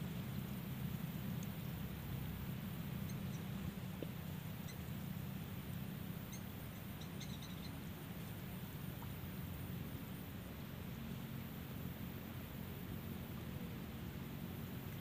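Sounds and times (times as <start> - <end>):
steady low hum: 0.0 - 15.0
faint high-pitched chirps: 3.0 - 3.6, 4.6 - 4.9, 6.2 - 7.9.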